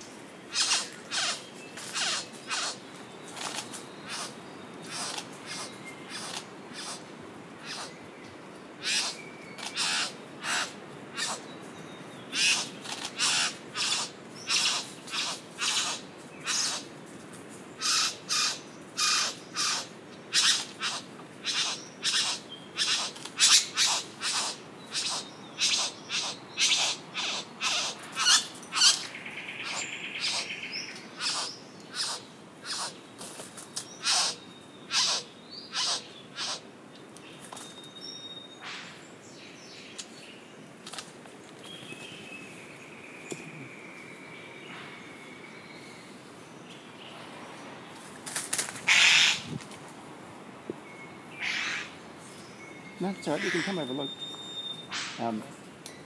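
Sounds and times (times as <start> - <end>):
bird short harsh calls: 0.5 - 2.8, 4.1 - 7.0, 7.6 - 7.9, 8.8 - 11.4, 12.4 - 16.9, 17.8 - 29.0, 31.2 - 33.0, 34.0 - 36.7, 48.9 - 49.5, 51.4 - 51.9, 53.2 - 55.4.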